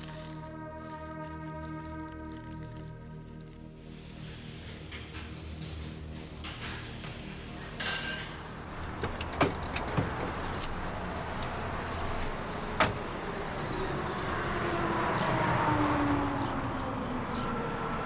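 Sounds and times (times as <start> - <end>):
vehicle door opening and shutting: 8.8 - 10.8, 12.8 - 13.1.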